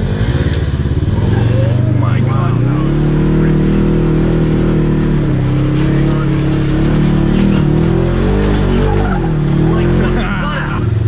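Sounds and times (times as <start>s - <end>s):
utv engine under load: 0.0s - 11.0s.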